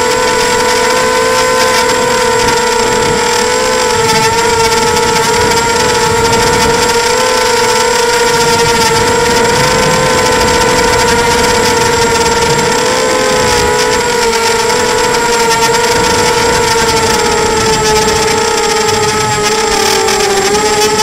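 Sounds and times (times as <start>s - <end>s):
quadcopter motors whining: 0.0s - 21.0s.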